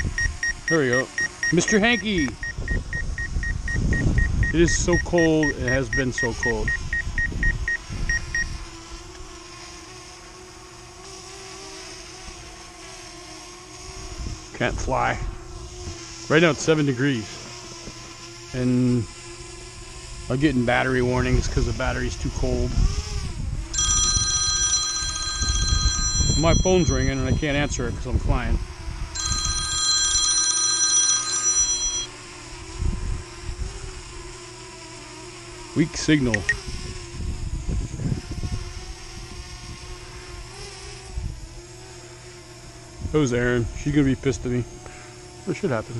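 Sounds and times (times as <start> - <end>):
wind rumble on microphone: 0.0 - 0.4, 2.1 - 8.7, 14.0 - 16.0, 21.0 - 24.2, 25.4 - 29.2, 32.7 - 34.1, 36.4 - 41.6
phone ringtone ringing: 0.0 - 8.4, 23.7 - 27.9, 29.2 - 32.1
remote controller warning beeps: 0.0 - 8.5, 23.8 - 27.8, 29.2 - 32.1, 36.3 - 36.6
faint hum: 0.0 - 9.3, 18.0 - 34.4.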